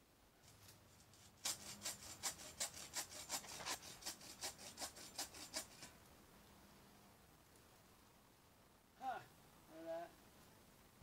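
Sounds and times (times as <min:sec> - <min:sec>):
hand saw cutting wood: 0:01.0 - 0:06.0.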